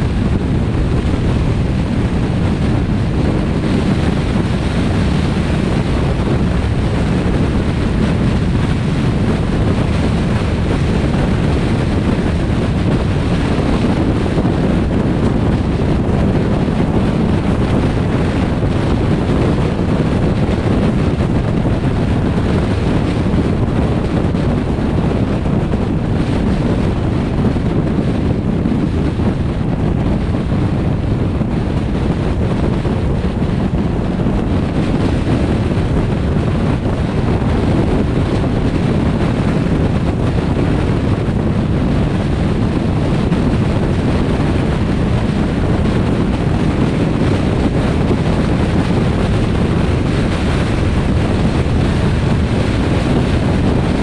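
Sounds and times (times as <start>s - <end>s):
car road rumble: 0.0s - 54.0s
wind rushing over microphone: 0.0s - 54.0s.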